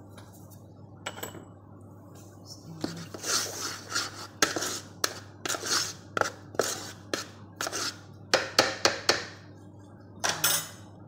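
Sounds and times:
hand mixing flour in plastic bowl: 2.8s - 8.0s.

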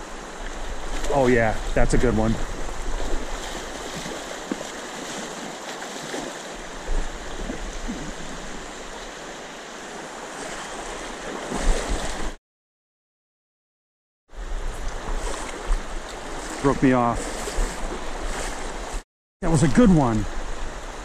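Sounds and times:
river current rushing: 0.0s - 12.4s, 14.4s - 21.0s.

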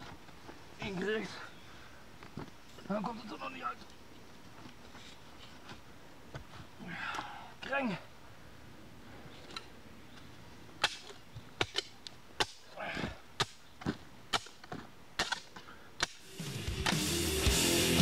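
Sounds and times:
spade chopping into soil: 13.4s - 16.2s
rock music: 16.3s - 18.0s.

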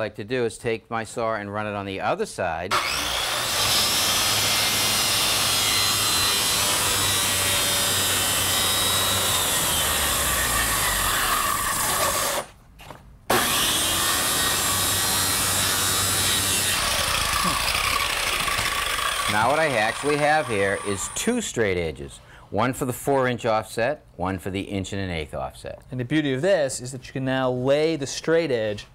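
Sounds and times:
circular saw cutting plywood: 2.7s - 12.5s, 13.3s - 21.4s.

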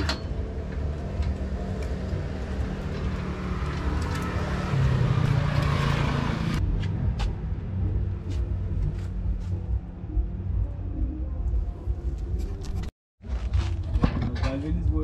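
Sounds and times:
motor vehicle running: 0.0s - 10.5s.

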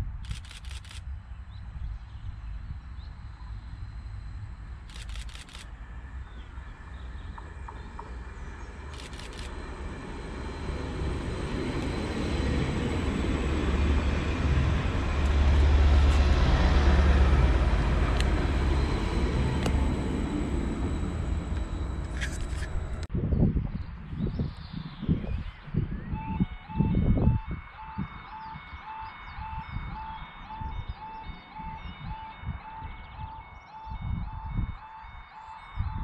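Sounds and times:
train engine rumble: 0.0s - 23.1s
wheel-on-rail noise: 4.6s - 23.1s.

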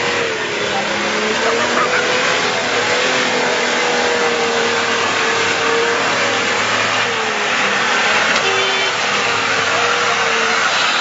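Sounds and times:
engine running under load: 0.0s - 11.0s.

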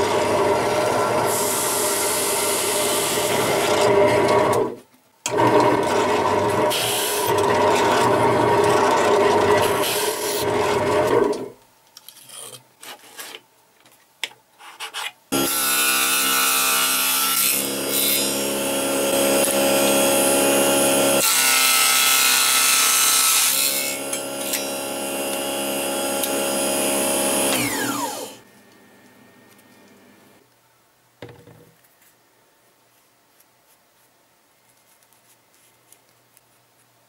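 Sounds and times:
table saw cutting wood: 0.0s - 11.5s, 15.3s - 28.4s.

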